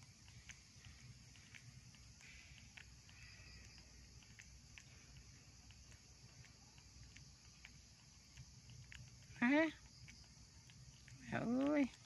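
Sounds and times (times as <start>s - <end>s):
faint ticks: 0.0s - 12.0s
high insect hiss: 0.0s - 12.0s.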